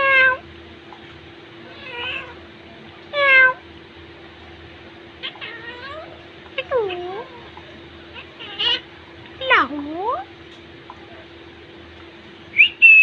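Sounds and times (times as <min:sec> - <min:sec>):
faint steady hum: 0:00.0 - 0:13.0
parakeets calling: 0:05.2 - 0:11.4.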